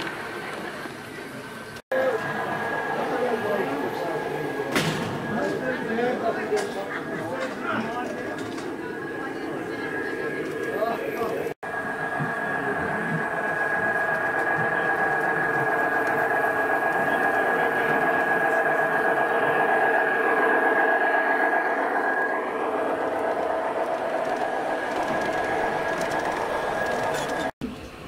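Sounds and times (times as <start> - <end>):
wheels rolling on rails: 0.0 - 28.0
model train motor whine: 7.4 - 27.5.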